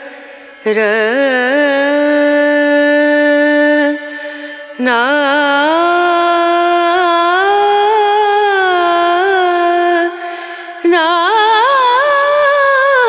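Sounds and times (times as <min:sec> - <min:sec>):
solo devotional singing: 0:00.0 - 0:13.0.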